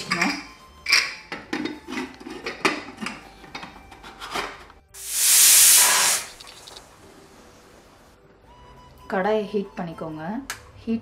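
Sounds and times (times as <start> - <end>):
pressure cooker steam hiss: 5.0 - 6.8.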